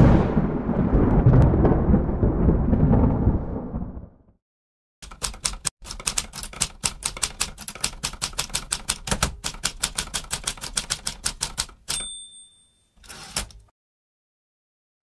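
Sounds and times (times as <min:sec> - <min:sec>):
typewriter keystrokes clacking: 0:05.0 - 0:12.2, 0:13.0 - 0:13.7
typewriter bell ding: 0:11.8 - 0:13.7.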